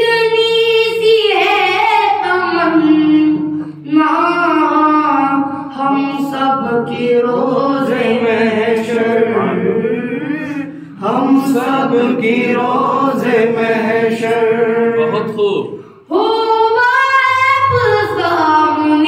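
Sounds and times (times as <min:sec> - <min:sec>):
boy chanting into a microphone: 0:00.0 - 0:07.9, 0:16.1 - 0:19.0.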